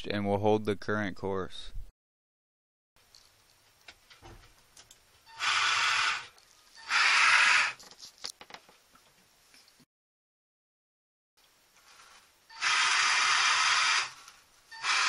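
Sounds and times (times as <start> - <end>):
electric actuator motor running: 5.4 - 7.8, 12.5 - 15.0.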